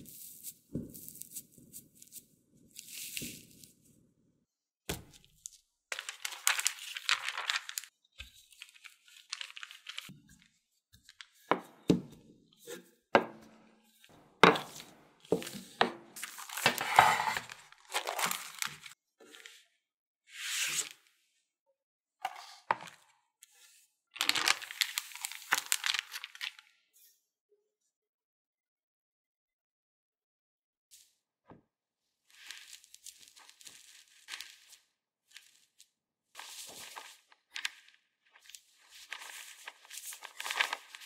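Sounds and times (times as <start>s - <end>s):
plastic bag crinkling: 6.0s - 7.9s, 8.5s - 10.1s.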